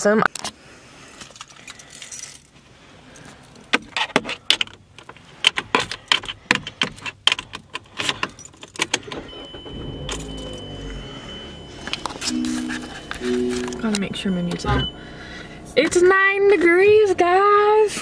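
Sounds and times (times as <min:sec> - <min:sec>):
car keys jangling and clicking: 0:01.2 - 0:02.6, 0:03.2 - 0:16.6
car engine starting and idling: 0:07.8 - 0:18.0
thin high tone: 0:09.4 - 0:15.8.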